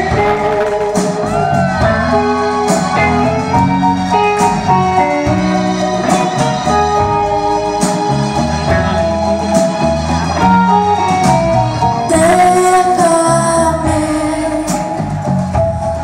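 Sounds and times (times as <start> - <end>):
pop-rock band playing: 0.0 - 16.0
person singing: 11.9 - 15.3.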